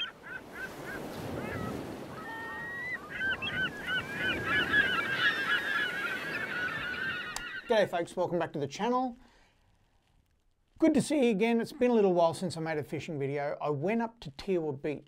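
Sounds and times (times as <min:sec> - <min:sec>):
terns calling harshly: 0:00.0 - 0:08.0
surf washing: 0:00.0 - 0:09.2.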